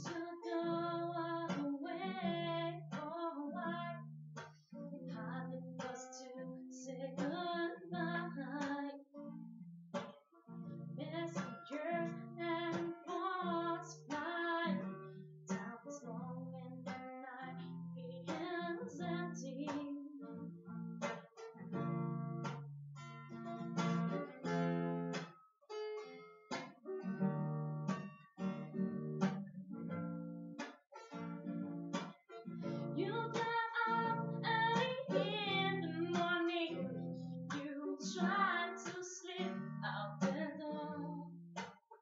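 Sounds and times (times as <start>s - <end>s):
woman singing: 0.0s - 4.0s, 4.8s - 9.2s, 10.9s - 20.5s, 32.8s - 41.4s
acoustic guitar strumming: 0.0s - 42.0s.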